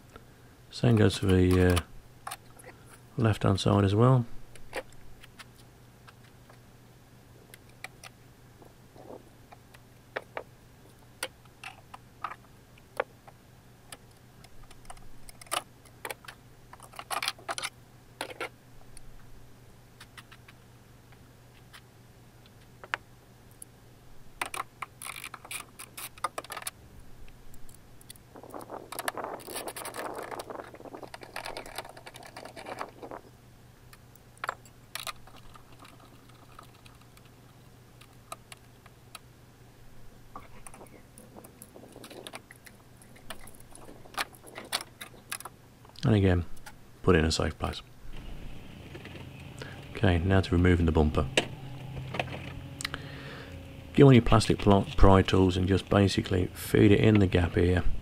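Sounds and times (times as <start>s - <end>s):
faint steady hum: 0.0s - 58.0s
rustling handling: 28.4s - 33.3s, 40.4s - 45.6s.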